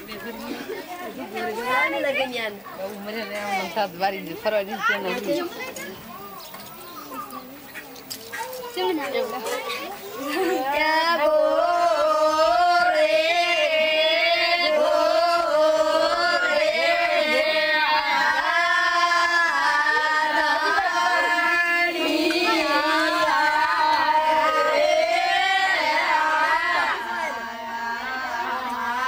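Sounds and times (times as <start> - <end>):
women singing in unison: 10.2 - 29.0.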